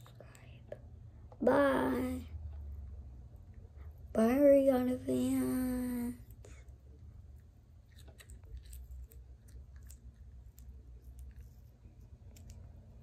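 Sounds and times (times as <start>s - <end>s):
faint chewing: 0.0s - 1.4s, 6.2s - 13.0s
low steady rumble: 0.0s - 13.0s.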